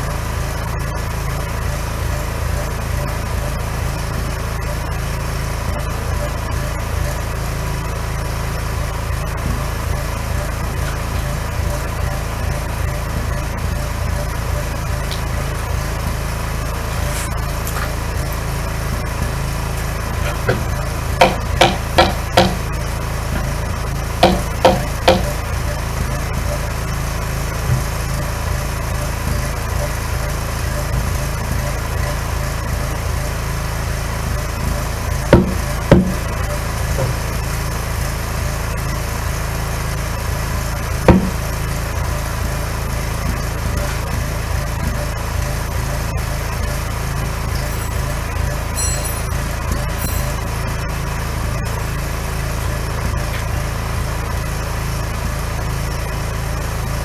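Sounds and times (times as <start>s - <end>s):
generator running: 0.0s - 57.0s
knocks on log wall: 20.3s - 22.6s, 24.2s - 25.3s, 35.3s - 36.2s, 41.1s - 41.4s.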